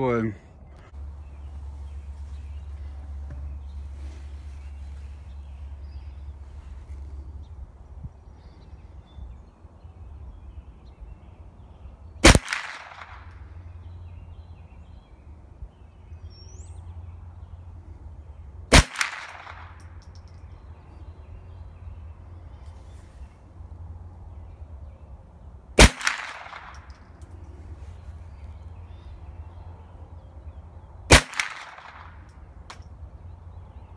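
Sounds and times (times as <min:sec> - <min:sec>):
rifle shots with echo: 0:12.2 - 0:13.5, 0:18.7 - 0:19.9, 0:25.8 - 0:27.0, 0:31.1 - 0:32.3.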